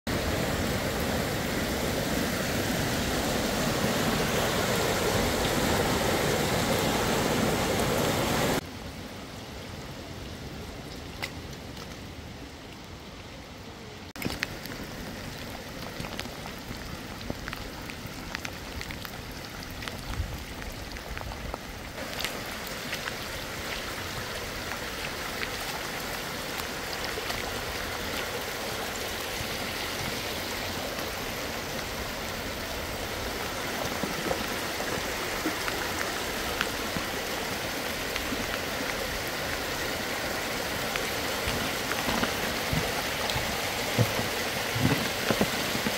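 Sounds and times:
floodwater rushing over pavement: 0.1s - 45.9s
raindrop ticks: 14.2s - 23.2s.

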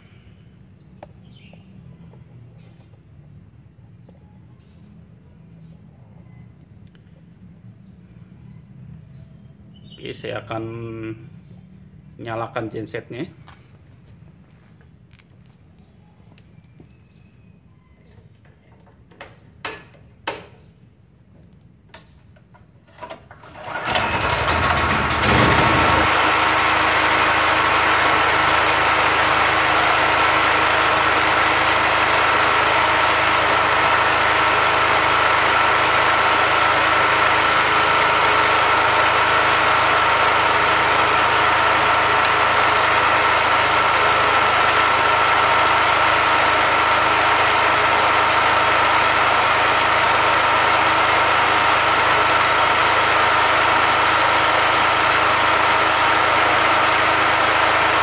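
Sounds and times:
generator engine running: 21.9s - 58.0s.

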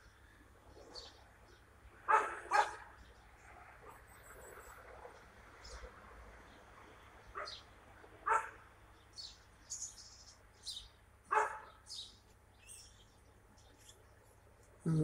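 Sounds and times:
small birds chirping: 0.0s - 15.0s
dog barking: 2.1s - 2.9s, 8.3s - 8.6s, 11.3s - 11.8s.

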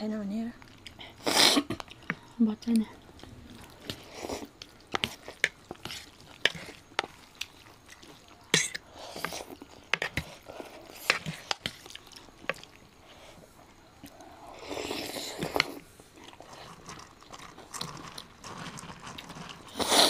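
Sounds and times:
slurping noodles: 1.2s - 1.9s, 14.3s - 20.0s.

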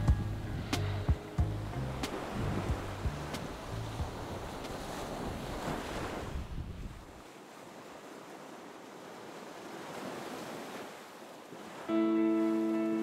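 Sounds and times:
wind buffeting microphone: 0.0s - 7.2s
small waves on sandy shore: 0.0s - 13.0s.

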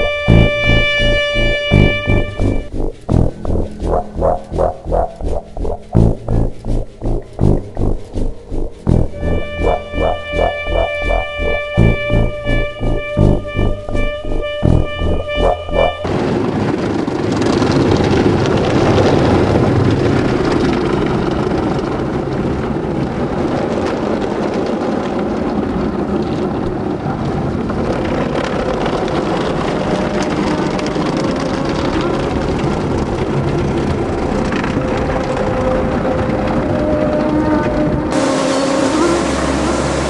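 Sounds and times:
faint machine tone: 0.0s - 16.1s.

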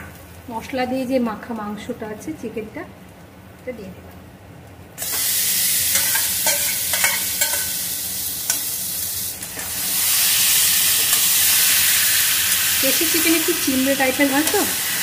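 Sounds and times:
chicken sizzling in hot oil: 5.0s - 15.0s.

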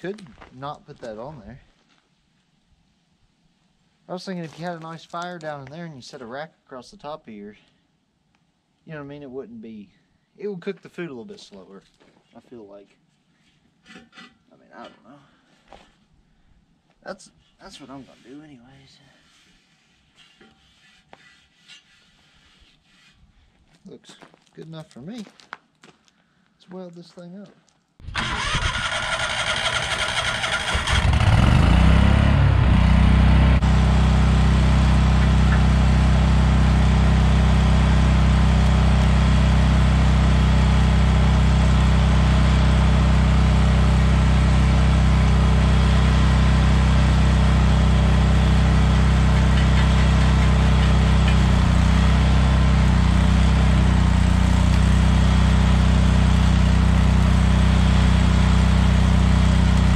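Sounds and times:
welding machine engine running: 28.0s - 59.9s.

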